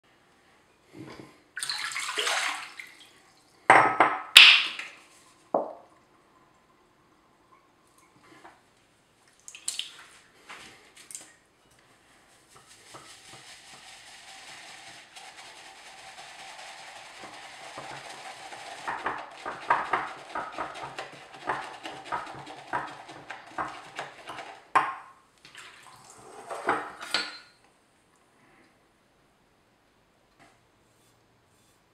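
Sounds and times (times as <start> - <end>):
shaving brush swishing in mug: 12.2 - 18.9.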